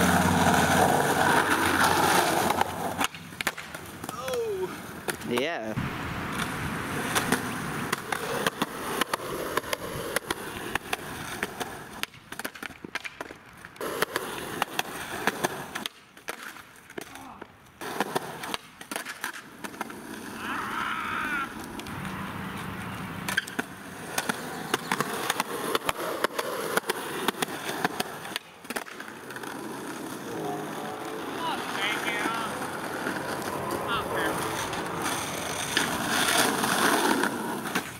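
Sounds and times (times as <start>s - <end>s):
skateboard clacking on pavement: 0.0s - 5.5s, 6.3s - 20.4s, 21.5s - 37.9s
skateboard rolling on asphalt: 0.0s - 37.9s.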